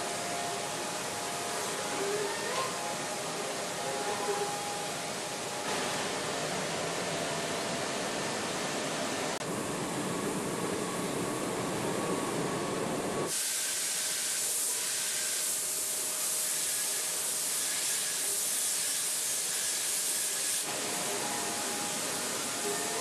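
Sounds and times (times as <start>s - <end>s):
paint sprayers hissing: 13.3s - 23.0s.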